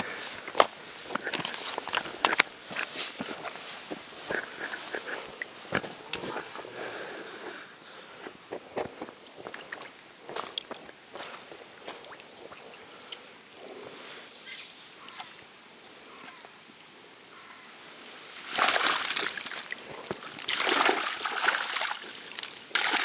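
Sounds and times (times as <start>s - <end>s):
faint water lapping: 0.0s - 8.2s, 17.4s - 23.0s
water splashing around fish net: 18.3s - 23.0s.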